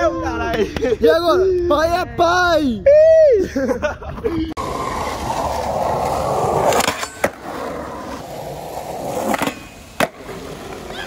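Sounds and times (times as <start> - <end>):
skateboard wheels rolling: 4.2 - 11.0
skateboard clacking: 4.6 - 11.0.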